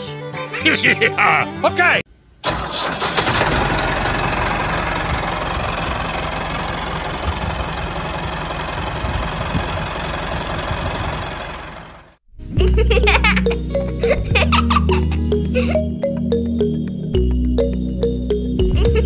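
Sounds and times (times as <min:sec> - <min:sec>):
tractor engine chugging: 0:02.4 - 0:12.2.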